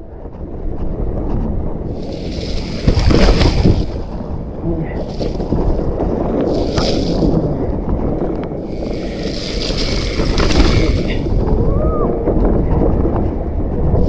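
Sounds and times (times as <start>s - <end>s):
bike tyre noise: 0.0s - 14.0s
wind over microphone: 0.0s - 14.0s
bike rattling clicks: 8.0s - 11.6s.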